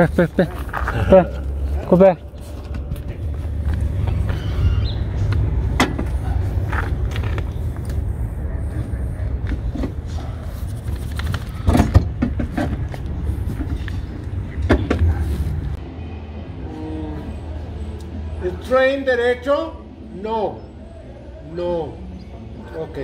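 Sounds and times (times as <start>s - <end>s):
steady low rumble: 0.0s - 11.6s.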